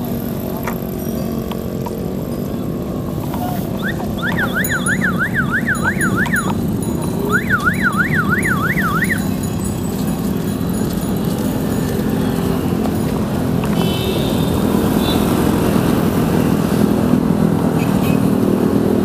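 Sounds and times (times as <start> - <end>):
wind and road noise rumble: 0.0 - 19.0
electronic siren yelping: 3.5 - 9.4.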